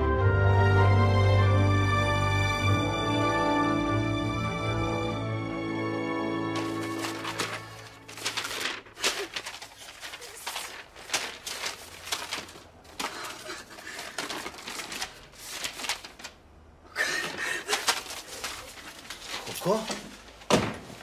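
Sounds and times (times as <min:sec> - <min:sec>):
paper rustling and crinkling: 0:06.5 - 0:21.0.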